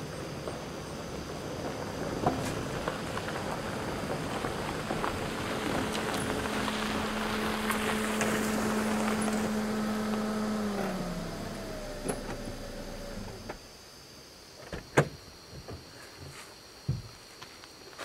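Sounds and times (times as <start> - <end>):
tyres crunching on gravel: 0.2 - 13.6
car engine hum: 1.8 - 13.7.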